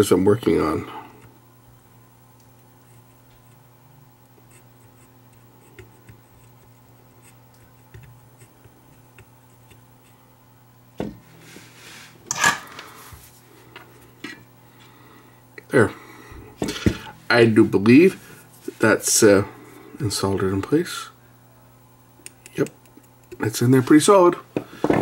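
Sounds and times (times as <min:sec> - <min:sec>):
fingers clicking and rubbing wire: 0:02.3 - 0:10.2, 0:22.2 - 0:23.5.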